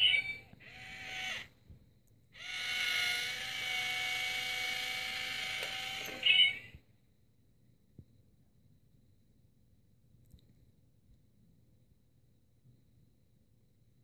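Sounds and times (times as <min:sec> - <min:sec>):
small electric motor whirring: 0:00.0 - 0:01.5, 0:02.4 - 0:06.7.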